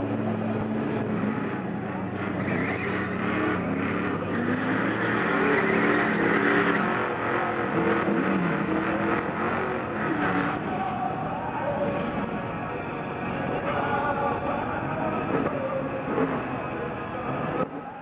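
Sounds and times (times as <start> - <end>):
car engines accelerating hard: 0.0 - 18.0.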